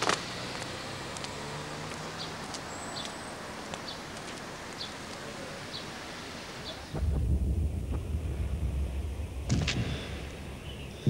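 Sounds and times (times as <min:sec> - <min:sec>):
steady hiss: 0:02.6 - 0:11.0.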